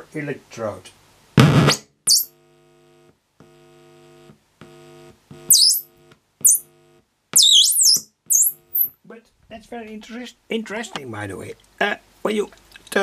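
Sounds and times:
mains hum from loudspeaker: 2.4s - 7.0s
high whistles falling in pitch: 5.5s - 5.8s, 7.4s - 8.9s.

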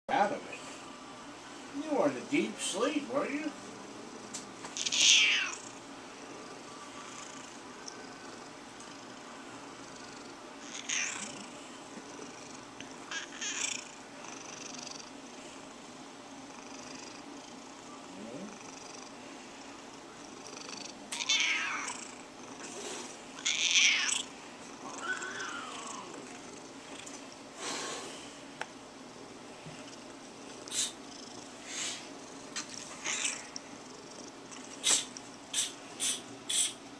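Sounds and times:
cat purring: 3.5s - 15.6s, 16.3s - 28.1s, 29.1s - 35.2s
cat crying and grumbling: 4.8s - 5.7s, 10.6s - 11.4s, 13.1s - 13.8s, 21.2s - 22.1s, 23.4s - 26.2s, 33.0s - 33.5s.

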